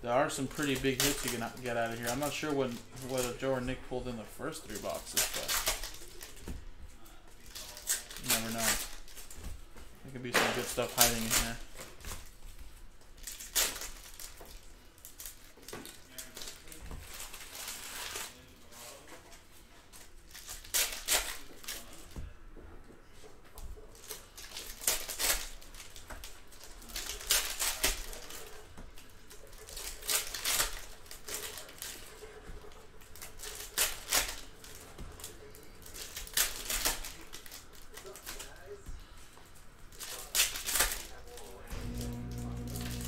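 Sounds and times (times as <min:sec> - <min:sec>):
foil wrappers tearing and crinkling: 0:00.2 - 0:06.5, 0:07.4 - 0:09.4, 0:10.1 - 0:12.4, 0:13.2 - 0:18.7, 0:19.9 - 0:22.1, 0:23.9 - 0:38.7, 0:39.9 - 0:43.0.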